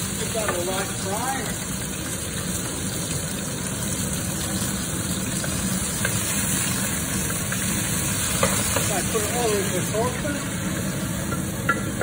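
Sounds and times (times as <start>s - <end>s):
exhaust fan humming: 0.0s - 12.0s
food sizzling in a wok: 0.0s - 12.0s
spatula tapping pan: 11.3s - 12.0s.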